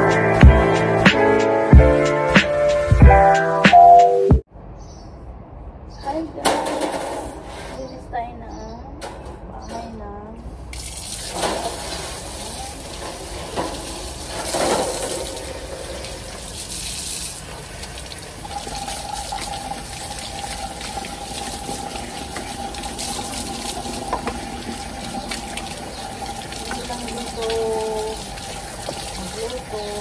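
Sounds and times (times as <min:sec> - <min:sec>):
water splashing: 0:10.6 - 0:30.0
tap water running: 0:10.7 - 0:30.0.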